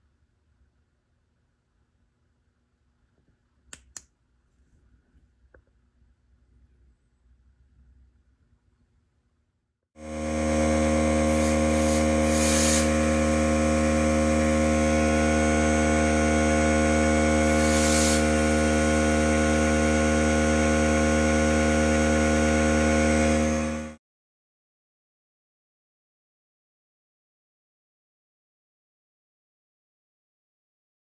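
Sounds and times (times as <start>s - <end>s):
electric power tool humming: 10.0s - 24.0s
hissy scraping: 11.3s - 13.3s, 17.4s - 19.1s.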